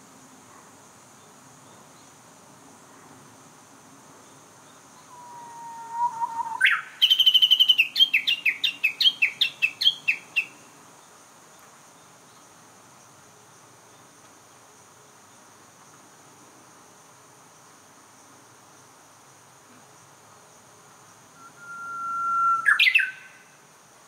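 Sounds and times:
high insect buzz: 1.0s - 24.0s
bird singing whistle and trill: 5.0s - 10.5s, 21.4s - 23.4s.

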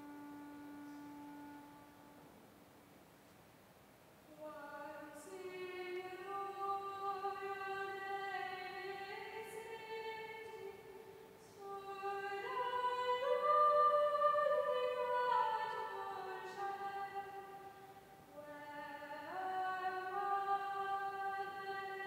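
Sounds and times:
child singing in reverberant church: 4.3s - 22.0s.

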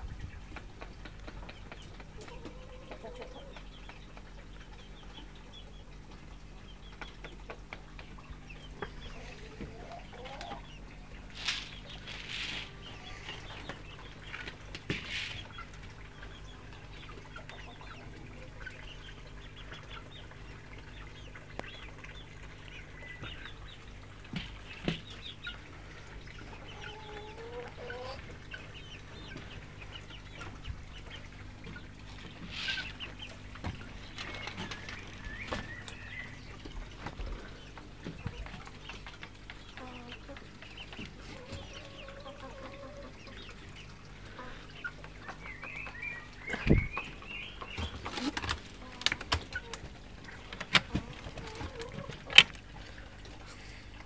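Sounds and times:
hens clucking: 0.2s - 54.0s
scuffling noises: 11.3s - 13.6s.

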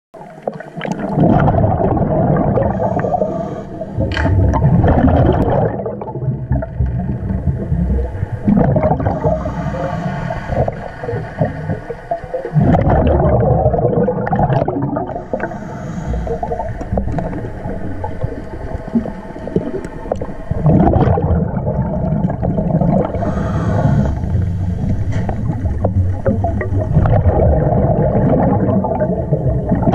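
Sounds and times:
bubbling exhale underwater: 0.2s - 29.9s
regulator hissing inhale: 2.6s - 4.0s, 9.1s - 11.4s, 15.1s - 17.0s, 23.0s - 25.5s.

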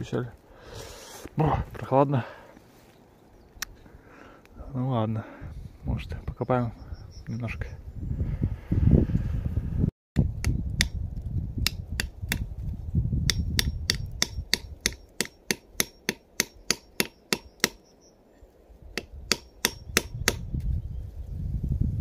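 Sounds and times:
hand tool tapping wood: 13.3s - 17.8s.

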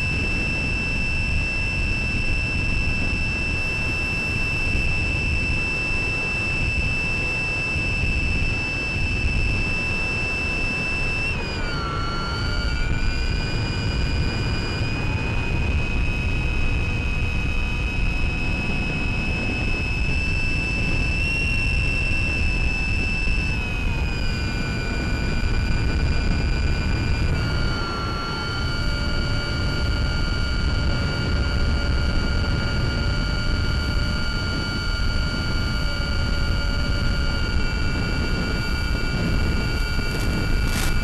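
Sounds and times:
electric motor high whine: 0.0s - 41.0s
wind rush: 10.7s - 41.0s.

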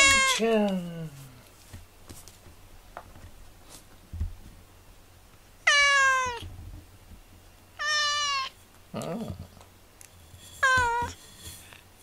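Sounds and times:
cat meowing: 0.0s - 0.4s, 5.6s - 6.4s, 7.8s - 8.6s, 10.6s - 11.2s.

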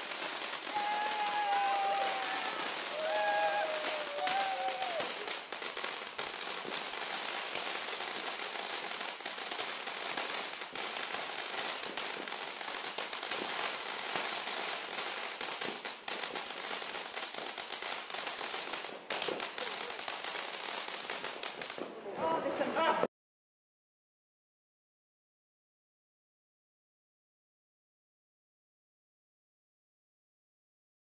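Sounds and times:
fountain firework hissing and crackling: 0.0s - 21.9s.

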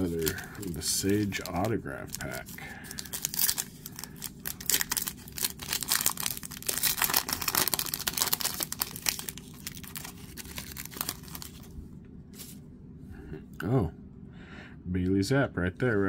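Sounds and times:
foil wrapper crinkling: 0.0s - 11.8s.

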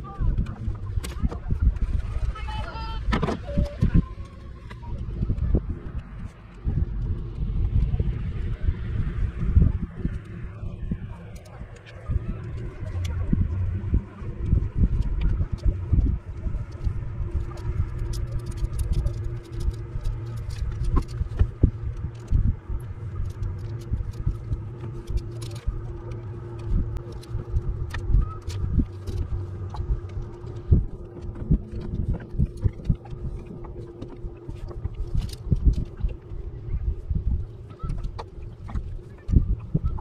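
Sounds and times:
choppy water around boat: 0.0s - 40.0s
faint steady hum: 0.0s - 40.0s
wind rumble: 0.0s - 40.0s
fishing tackle clicking and rattling: 15.0s - 36.3s.

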